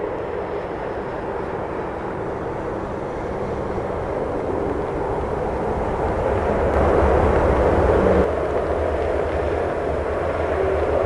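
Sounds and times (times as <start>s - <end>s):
jet engines rumbling: 0.0s - 11.0s.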